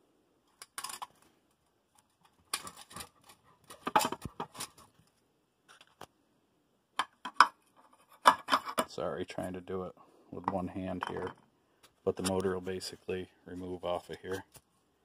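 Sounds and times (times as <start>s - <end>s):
metal clicks and scraping: 0.5s - 1.3s, 2.0s - 5.0s.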